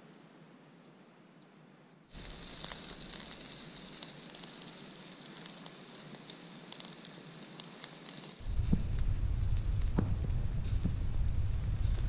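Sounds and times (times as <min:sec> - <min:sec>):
skewers sizzling over coals: 0:02.1 - 0:12.0.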